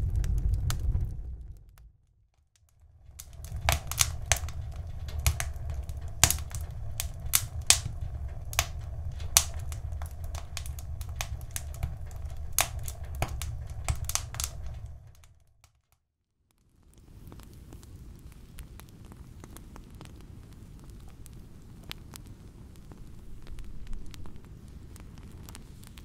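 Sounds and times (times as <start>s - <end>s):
low steady rumble: 0.0s - 2.0s, 2.8s - 15.3s, 22.8s - 25.8s
wood fire crackling: 0.0s - 15.8s, 16.8s - 26.0s.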